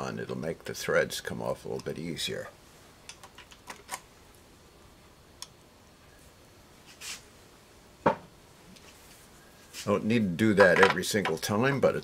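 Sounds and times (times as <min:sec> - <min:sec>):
short hiss: 0:06.8 - 0:07.3.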